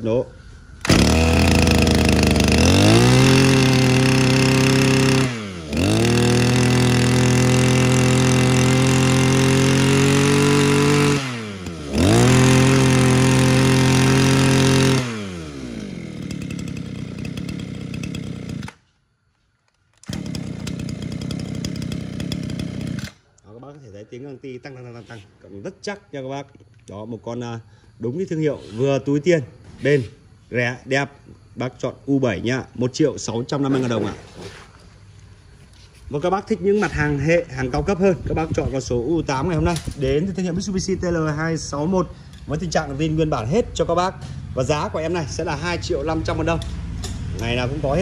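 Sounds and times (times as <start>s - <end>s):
brush cutter engine revving and idling: 0.8s - 18.8s, 20.0s - 23.2s.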